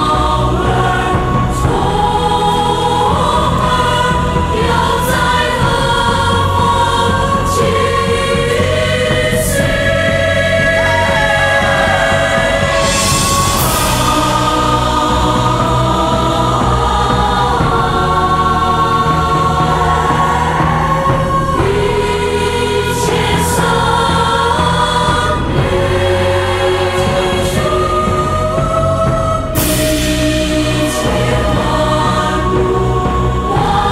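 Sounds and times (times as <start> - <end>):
choir singing slow song: 0.0 - 33.9
musical accompaniment: 0.0 - 33.9.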